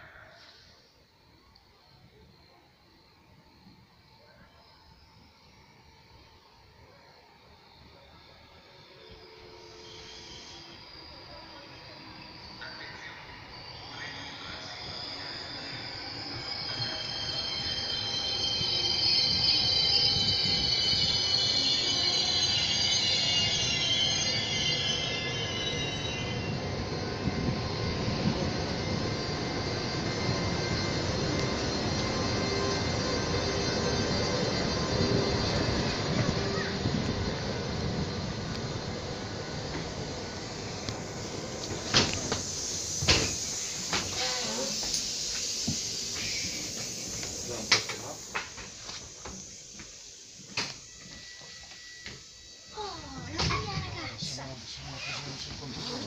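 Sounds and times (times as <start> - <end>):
train carriages rumbling past: 8.6 - 56.0
train door opening and shutting: 34.3 - 49.5, 50.4 - 54.2.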